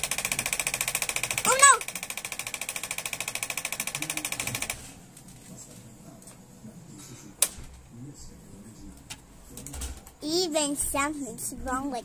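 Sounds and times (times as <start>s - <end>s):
fast mechanical rattle: 0.0s - 4.9s.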